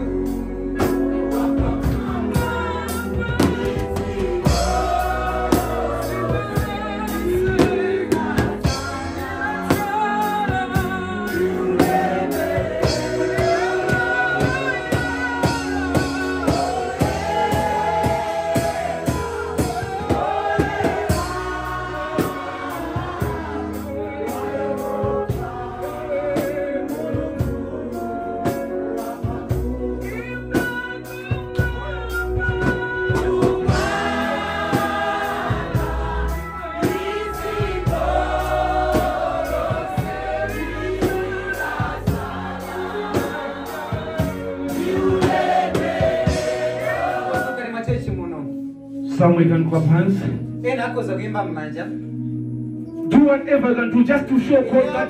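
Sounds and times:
voices singing: 0.0 - 47.8
electric bass: 0.0 - 55.0
electronic keyboard: 0.0 - 55.0
steady beat: 11.9 - 25.6.

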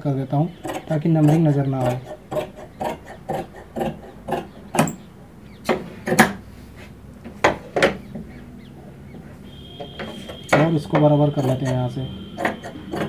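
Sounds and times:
shears snipping cloth: 0.6 - 5.0.

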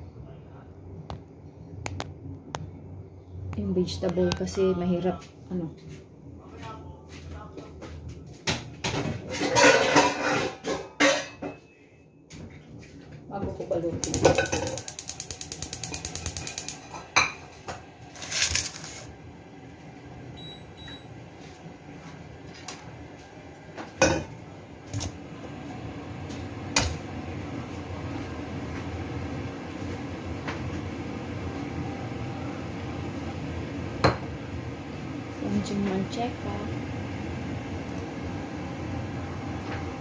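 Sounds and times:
steady low hum: 0.0 - 10.2, 11.8 - 40.0
utensil scraping a wok: 18.1 - 19.1.

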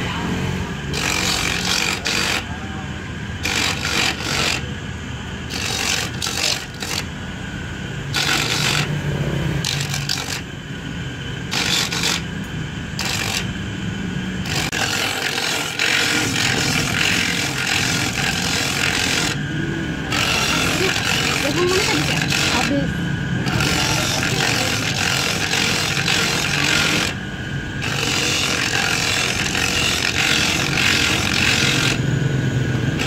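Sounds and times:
electric grater motor hum: 0.0 - 33.0
coconut rasping on grater: 0.9 - 2.5, 3.4 - 4.7, 5.5 - 7.1, 8.1 - 8.9, 9.6 - 10.5, 11.5 - 12.3, 13.0 - 13.6, 14.4 - 19.4, 20.1 - 27.2, 27.8 - 32.0.

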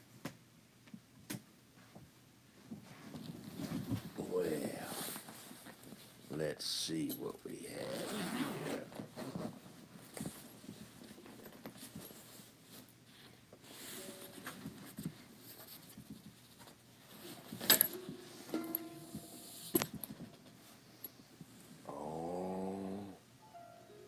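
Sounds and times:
rustling while handling harp: 2.6 - 21.8
harp strings ringing: 17.8 - 19.9.

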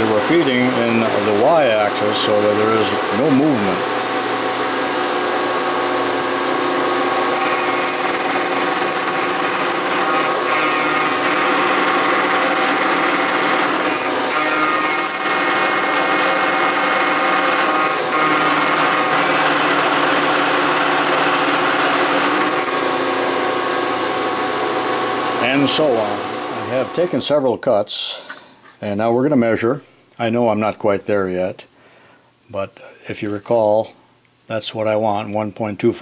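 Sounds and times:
milling machine spindle hum: 0.0 - 27.3
high-pitched cutting whine: 6.7 - 23.6.

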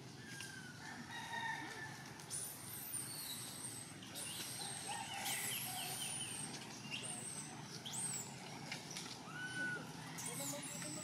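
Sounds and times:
birds whistling: 2.3 - 11.0.

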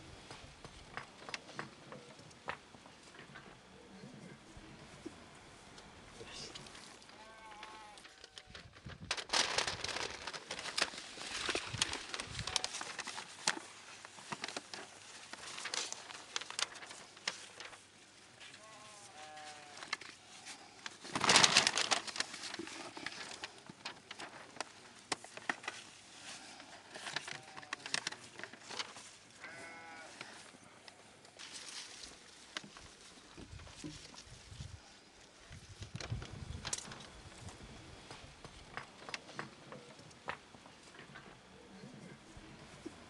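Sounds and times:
rustling and crackling paper: 6.5 - 30.6, 31.3 - 41.2
livestock bleating: 7.1 - 8.4, 18.6 - 19.9, 29.4 - 30.3.

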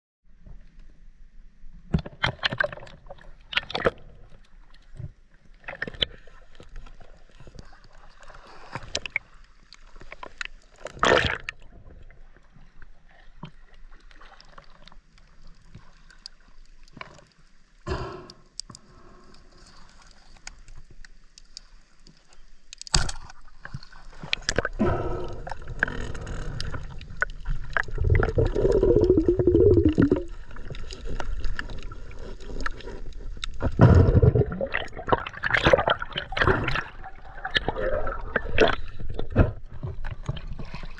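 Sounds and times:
underwater gurgling and churning: 1.9 - 22.0, 23.1 - 40.9
heavy bubbling and thudding: 27.5 - 30.3, 33.6 - 40.5.

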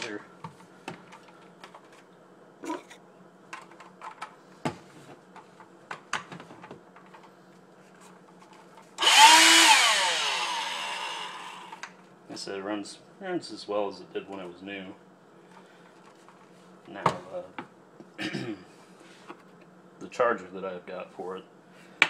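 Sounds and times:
vacuum motor whine: 9.0 - 11.9.

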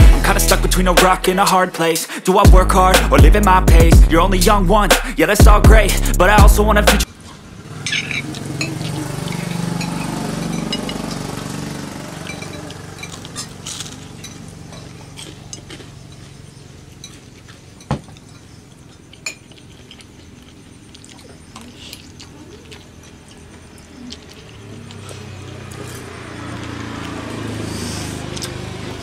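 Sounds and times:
spoons clinking on plates: 7.8 - 11.4, 12.1 - 16.4, 17.0 - 20.0.

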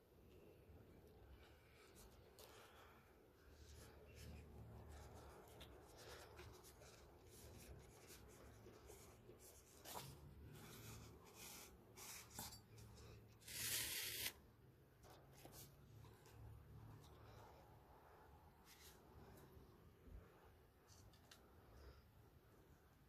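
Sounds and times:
paper rustling and scratching: 3.5 - 14.4.

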